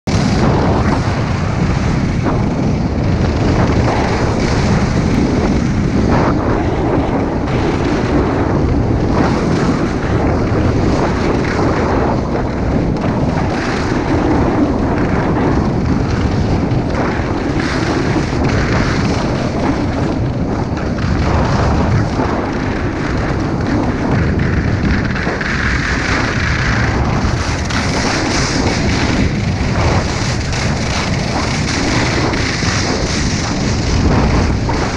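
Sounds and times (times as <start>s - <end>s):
wind buffeting microphone: 0.0s - 34.9s.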